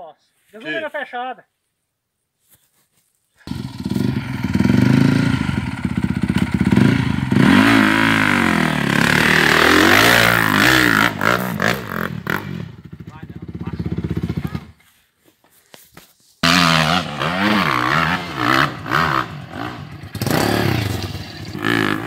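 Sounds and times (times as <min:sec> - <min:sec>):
dirt bike engine revving: 0:03.5 - 0:14.8, 0:16.4 - 0:22.0.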